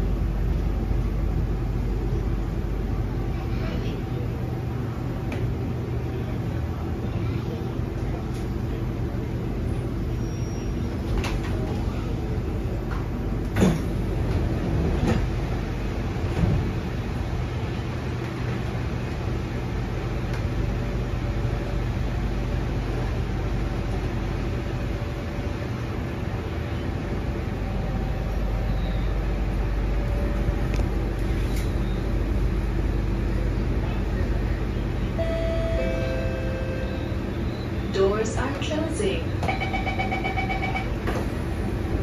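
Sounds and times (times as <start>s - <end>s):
stationary train hum: 0.0s - 42.0s
train doors opening with clunk: 10.2s - 12.1s, 12.8s - 17.0s, 38.3s - 42.0s.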